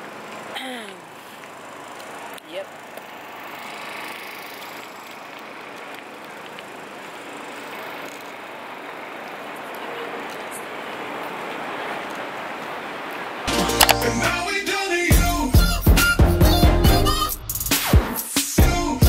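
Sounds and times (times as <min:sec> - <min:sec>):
city street traffic: 0:00.0 - 0:19.0
music with a beat: 0:15.1 - 0:19.0.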